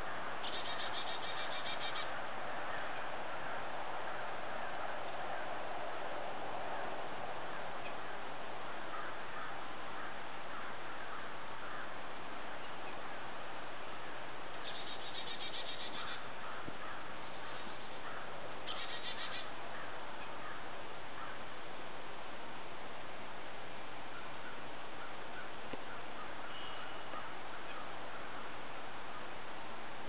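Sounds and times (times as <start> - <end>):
faint chirps of other birds: 0.0 - 3.1, 14.5 - 21.5, 24.1 - 29.4
bird singing fast repeated notes: 0.4 - 2.1, 14.6 - 16.3, 18.6 - 19.5.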